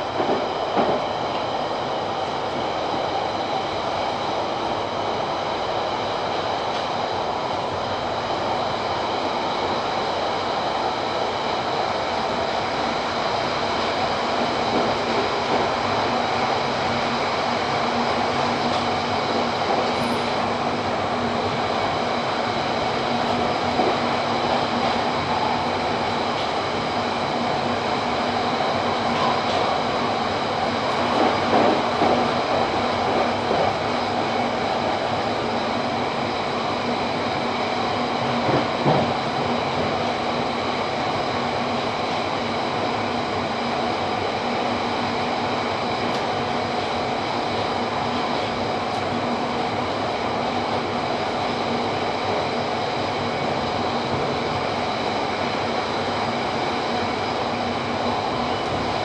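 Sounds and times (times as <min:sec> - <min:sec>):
train clunks: 0:00.0 - 0:01.5, 0:17.8 - 0:21.9, 0:23.0 - 0:35.2, 0:37.9 - 0:40.5
train wheels rumbling on rails: 0:00.0 - 0:59.0
train whine: 0:00.0 - 0:59.0.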